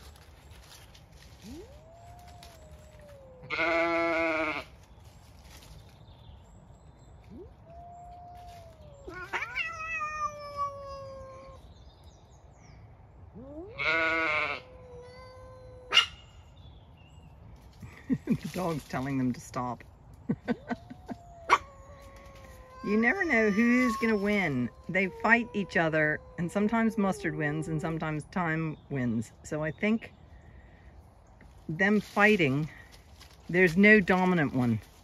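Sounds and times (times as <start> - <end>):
cats yowling: 1.4 - 4.6, 7.2 - 11.7, 13.3 - 16.4, 20.4 - 28.2
sheep bleating: 3.4 - 4.7, 13.8 - 14.7.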